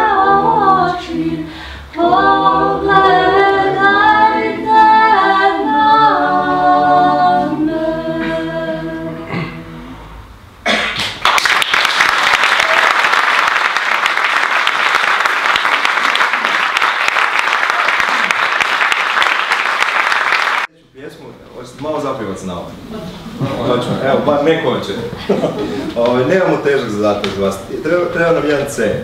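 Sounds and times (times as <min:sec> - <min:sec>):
vocal ensemble singing chords: 0:00.0 - 0:10.4
audience applause: 0:11.0 - 0:20.7.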